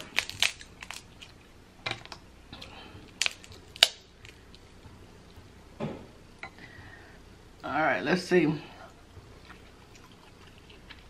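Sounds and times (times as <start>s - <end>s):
crab shells cracking: 0.0s - 1.4s, 2.0s - 4.6s.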